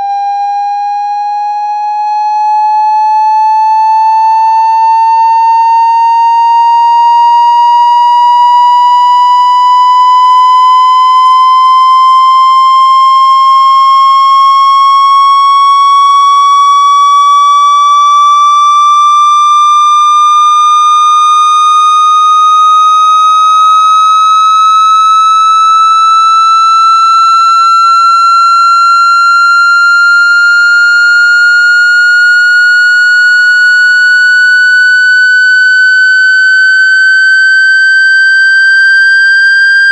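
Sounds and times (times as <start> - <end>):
electronic tone rising in pitch: 2.3 - 11.9, 18.4 - 39.9.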